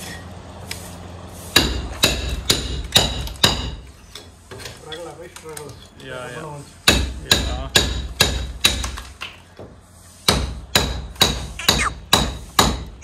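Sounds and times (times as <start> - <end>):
hammer striking chisel: 1.6 - 3.8, 6.8 - 9.1, 10.3 - 13.0.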